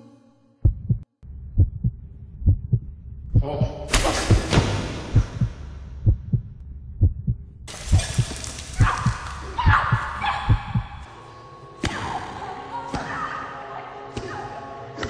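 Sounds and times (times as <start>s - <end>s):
heartbeat thumps: 0.6s - 11.1s.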